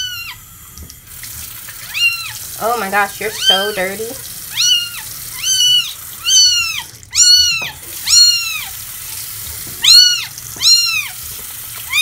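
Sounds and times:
kitten mewing: 4.5 - 8.8, 9.8 - 11.2.

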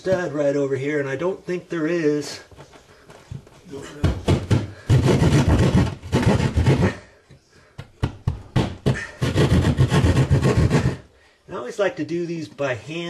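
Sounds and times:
hand saw rasping through wall: 4.3 - 7.1, 8.6 - 11.1.

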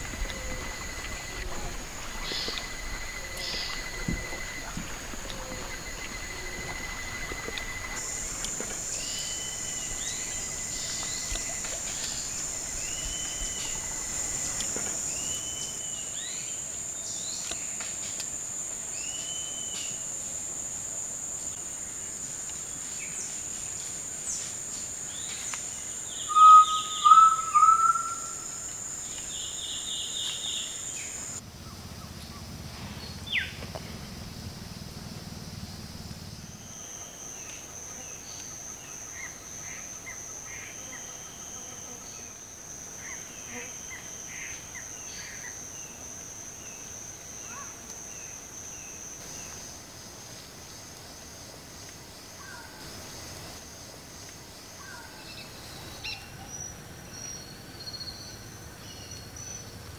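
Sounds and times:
high-pitched insect buzz: 0.0 - 21.6, 35.6 - 49.9
bird short call: 26.3 - 28.4.

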